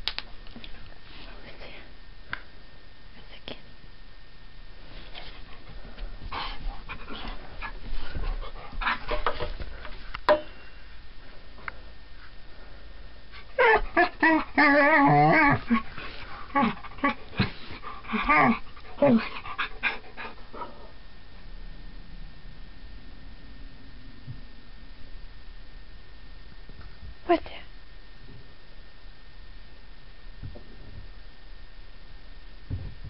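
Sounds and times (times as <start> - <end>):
faint rustling: 4.7 - 13.6, 15.6 - 19.4
dog whining and yipping: 13.6 - 15.9.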